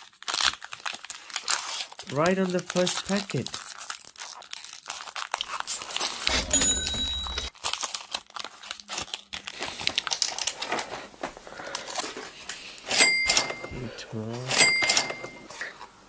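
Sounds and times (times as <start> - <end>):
foil wrapper crinkling and tearing: 0.0 - 6.3, 7.5 - 11.1.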